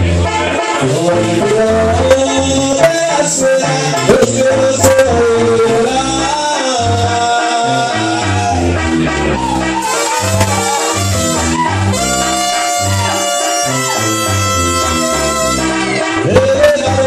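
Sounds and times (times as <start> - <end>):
brass band playing: 0.0 - 17.0
bass drum beat: 8.4 - 17.0.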